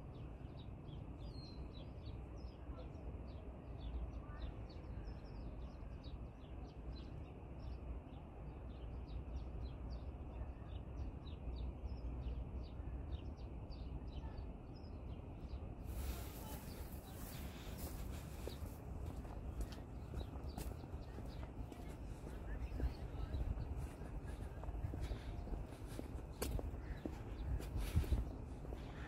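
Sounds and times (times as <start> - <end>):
small birds chirping: 0.1 - 29.0.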